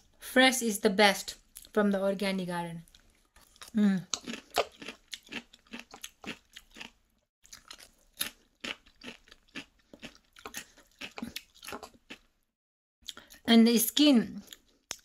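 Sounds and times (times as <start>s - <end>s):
person chewing crunchy cucumber: 2.9s - 12.3s, 14.4s - 15.0s.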